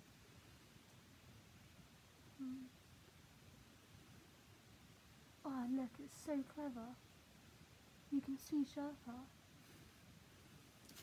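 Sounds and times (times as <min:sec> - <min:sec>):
faint room hiss: 0:00.0 - 0:11.0
woman's closed-mouth hum: 0:02.3 - 0:02.8.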